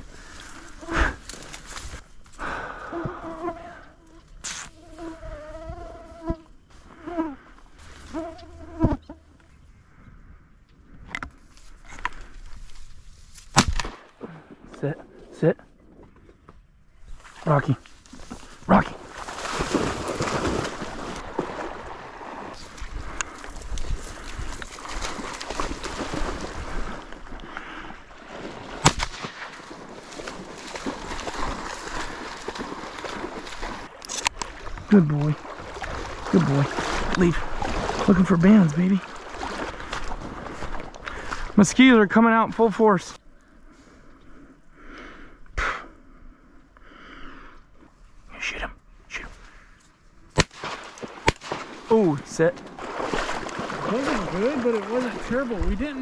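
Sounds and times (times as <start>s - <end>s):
rustling in the marsh: 0.0s - 45.4s, 46.0s - 56.0s
water sloshing: 17.2s - 41.6s, 50.4s - 56.0s
shotgun shot: 50.4s - 51.8s.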